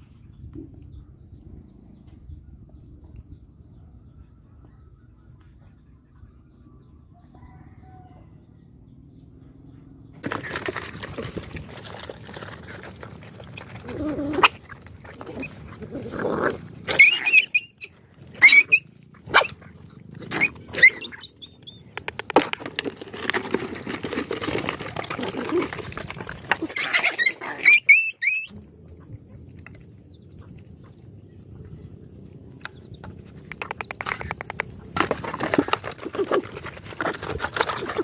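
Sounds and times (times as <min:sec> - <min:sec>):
dogs yelping: 0:09.6 - 0:22.4, 0:23.4 - 0:31.0
dogs chewing and slurping: 0:10.2 - 0:17.2, 0:18.1 - 0:27.4, 0:28.2 - 0:38.0.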